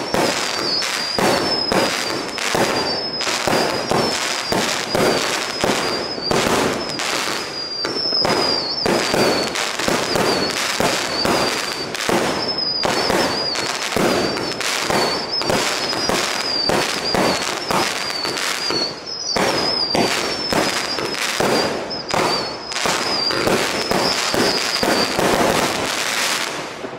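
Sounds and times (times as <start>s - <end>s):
firework cracks and bangs: 0.0s - 26.9s
firework whistling: 0.0s - 26.9s.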